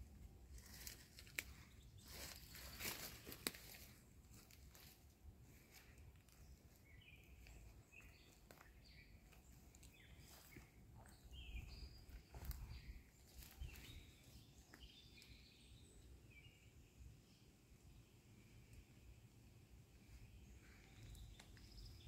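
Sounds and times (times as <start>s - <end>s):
faint bird chirps: 5.6s - 19.0s, 20.0s - 22.0s.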